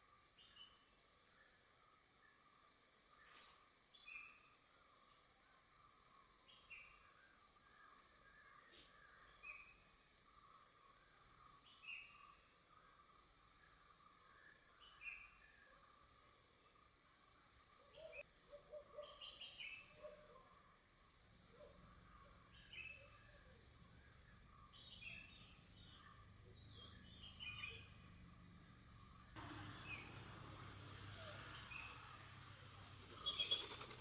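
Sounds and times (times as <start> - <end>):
insect chorus drone: 0.0 - 34.0
bird falling call: 29.4 - 34.0.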